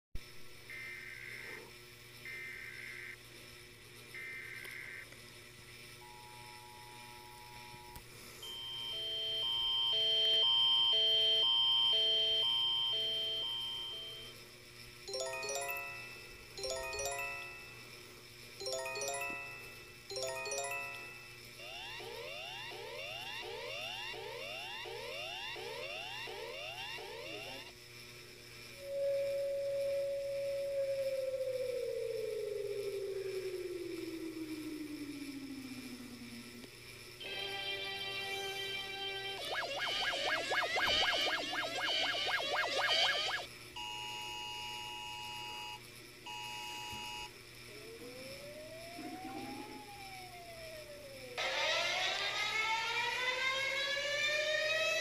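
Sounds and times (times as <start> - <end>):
rising whooping emergency alert tone: 8.4 - 14.3, 15.1 - 17.8, 18.6 - 27.7, 28.8 - 36.6, 37.2 - 44.0, 47.7 - 55.0
warning siren wailing: 21.6 - 27.7, 28.8 - 43.5, 47.7 - 55.0
shrill two-tone alert beeps: 39.4 - 44.0.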